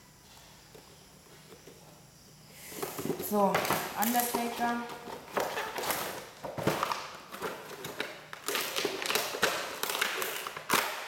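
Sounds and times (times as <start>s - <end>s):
plastic packaging rustling: 2.7s - 11.0s.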